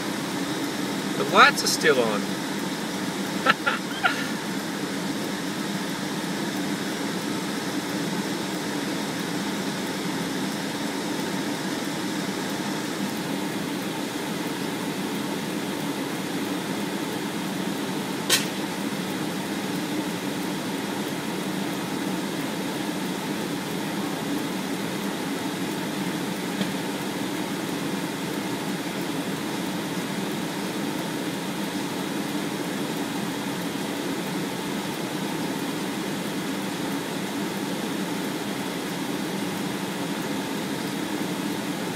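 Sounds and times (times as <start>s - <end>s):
low mechanical hum: 0.0s - 41.9s
sharp pop: 18.3s - 18.6s.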